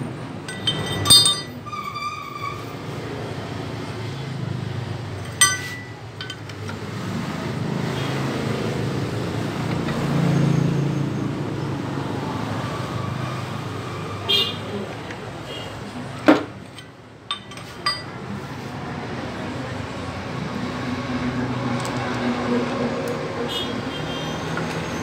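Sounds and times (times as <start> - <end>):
metal parts clinking: 0.5 - 1.8, 5.2 - 6.8, 16.6 - 18.2.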